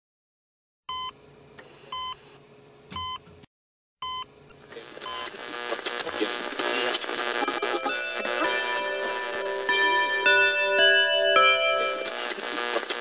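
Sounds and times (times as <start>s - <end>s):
music: 7.4s - 12.9s.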